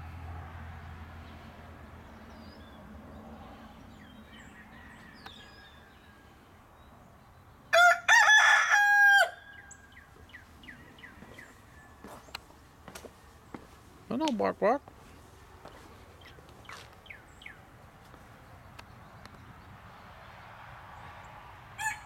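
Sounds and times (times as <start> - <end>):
rooster crowing: 4.3 - 6.3, 7.7 - 9.8, 21.8 - 22.0.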